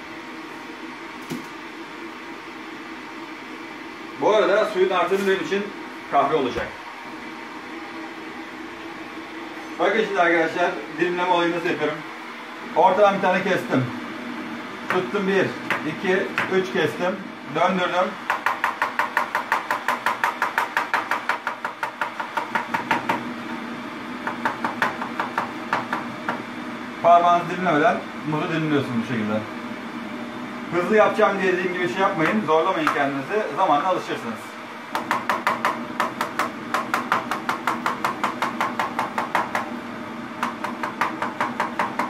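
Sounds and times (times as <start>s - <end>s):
knife chopping on plastic board: 18.3s - 23.2s, 24.2s - 26.4s, 34.9s - 39.7s, 40.4s - 42.0s.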